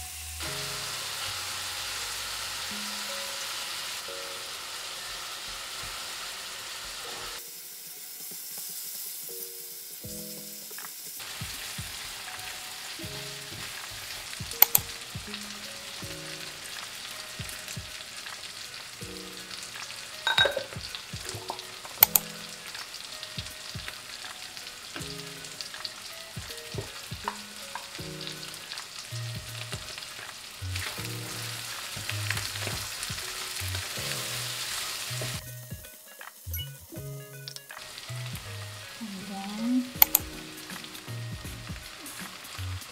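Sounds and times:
food sizzling in oil: 0.0s - 42.9s
utensil clinking against pan: 20.2s - 22.2s.

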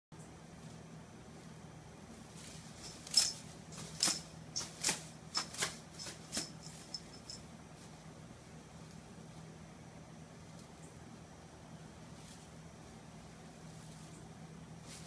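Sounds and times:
tinsel toy crinkly swishes: 2.2s - 7.9s.

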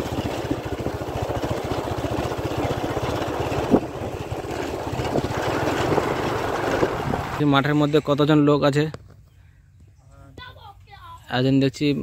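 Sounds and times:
motorcycle engine running: 0.0s - 9.3s.

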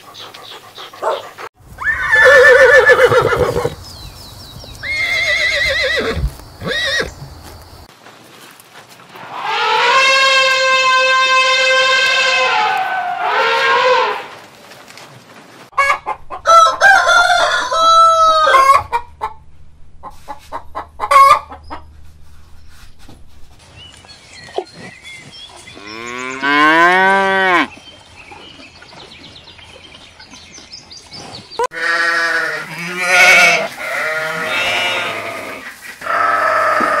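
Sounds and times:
elephant trumpeting: 9.2s - 14.3s
cow mooing: 25.8s - 27.7s
sheep bleating: 31.7s - 37.0s.

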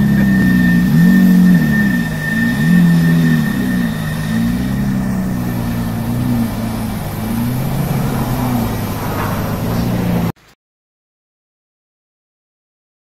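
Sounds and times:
supercar engine revving: 0.0s - 10.4s.

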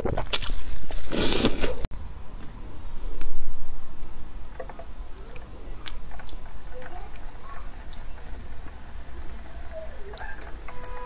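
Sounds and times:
small crackles and clicks: 4.4s - 11.0s
cola trickling onto palm: 5.1s - 11.0s.

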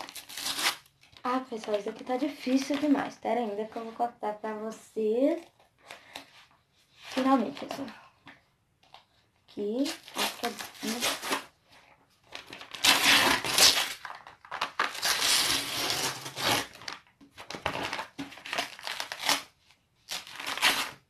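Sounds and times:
paper packaging crinkling and tearing: 0.0s - 3.0s, 9.7s - 11.5s, 12.2s - 21.0s.

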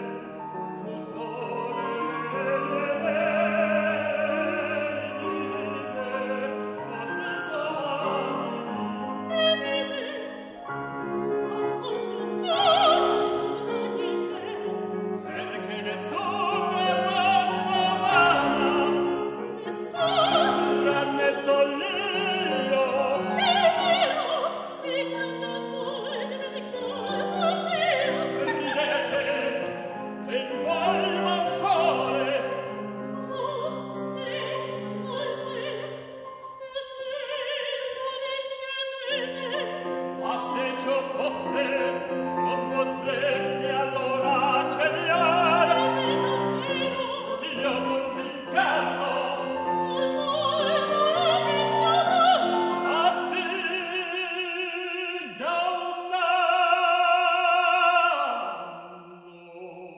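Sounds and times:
piano accompaniment: 0.0s - 58.5s
operatic duet singing: 0.0s - 59.9s.

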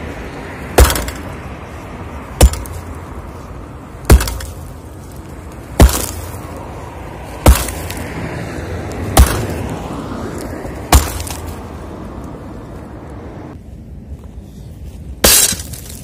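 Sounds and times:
sledgehammer striking concrete: 0.8s - 1.3s, 2.4s - 2.8s, 4.1s - 4.6s, 5.8s - 6.3s, 7.4s - 8.0s, 9.2s - 9.6s, 10.9s - 11.5s, 15.2s - 16.0s.

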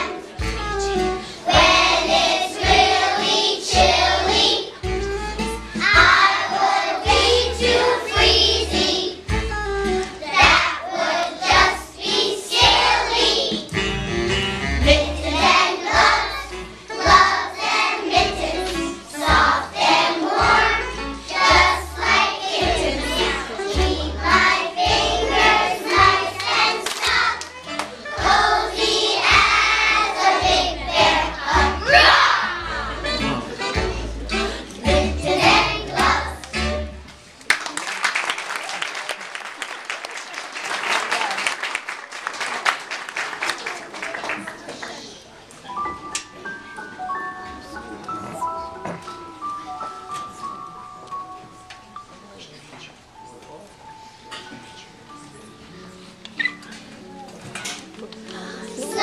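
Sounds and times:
children singing: 0.0s - 4.8s, 5.8s - 9.3s, 10.2s - 13.7s, 14.8s - 27.4s, 28.0s - 36.9s, 58.8s - 59.0s.

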